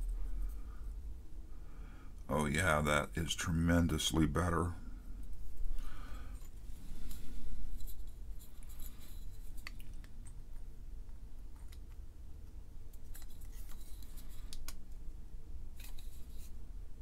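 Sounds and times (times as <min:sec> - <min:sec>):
small clicks and scrapes: 0:06.3 - 0:15.0, 0:15.7 - 0:16.6.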